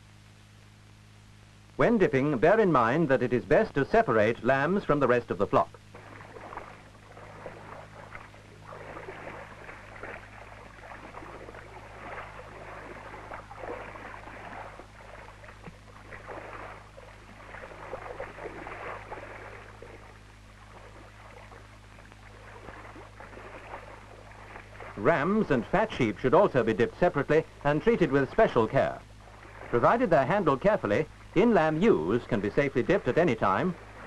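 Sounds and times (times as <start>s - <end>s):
steady low hum: 0.0s - 34.0s
sheep splashing in water: 5.9s - 34.0s.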